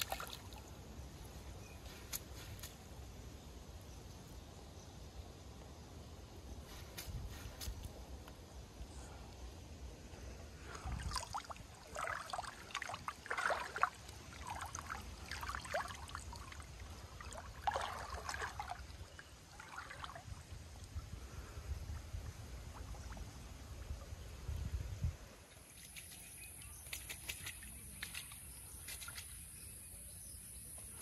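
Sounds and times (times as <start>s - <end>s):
water splashing and trickling: 0.0s - 3.0s, 10.4s - 30.1s.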